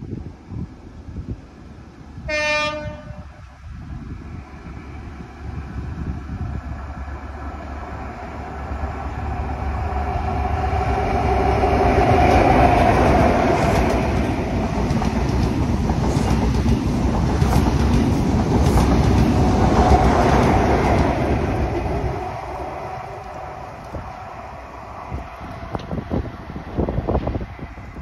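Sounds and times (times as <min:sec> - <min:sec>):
diesel train engine drone: 0:00.0 - 0:28.0
train wheels clattering over rail joints: 0:12.1 - 0:21.8.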